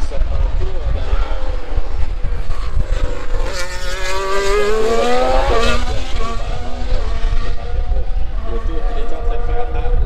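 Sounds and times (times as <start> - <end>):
racing car engine revving: 0.0 - 10.0.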